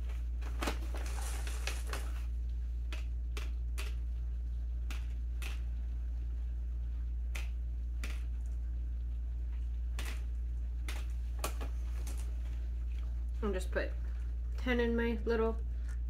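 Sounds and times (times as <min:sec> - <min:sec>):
steady low hum: 0:00.0 - 0:16.0
candy shells clicking: 0:02.9 - 0:04.1, 0:07.3 - 0:08.4.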